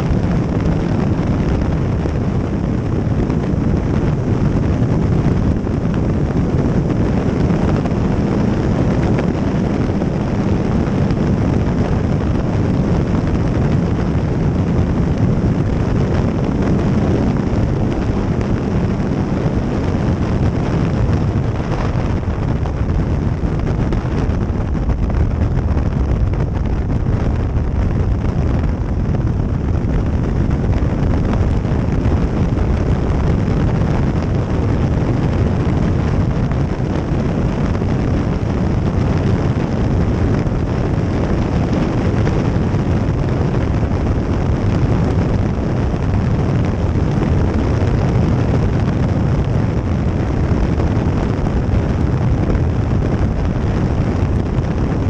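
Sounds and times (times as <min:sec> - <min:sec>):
motorcycle engine running: 0:00.0 - 0:40.7
wind rushing over microphone: 0:00.0 - 0:55.0.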